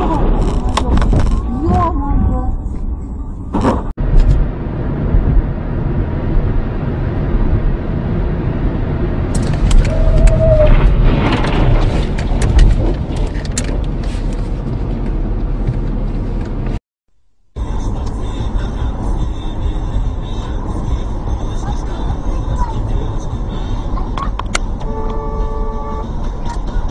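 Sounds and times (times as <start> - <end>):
road rumble inside car: 0.0 - 16.8, 17.6 - 26.9
short squeal: 9.7 - 10.9
car crash knocks and clatter: 10.7 - 14.0.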